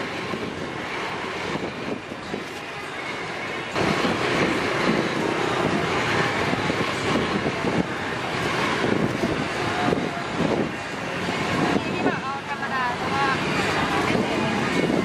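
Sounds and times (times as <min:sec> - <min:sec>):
gas burner rush: 0:00.0 - 0:15.0.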